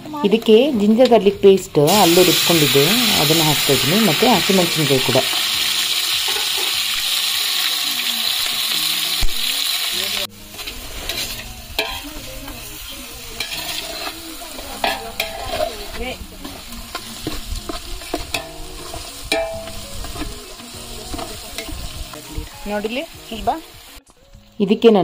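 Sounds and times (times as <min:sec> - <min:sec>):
food sizzling in hot oil: 0:01.8 - 0:24.8
metal spoon scraping pot: 0:13.4 - 0:20.4.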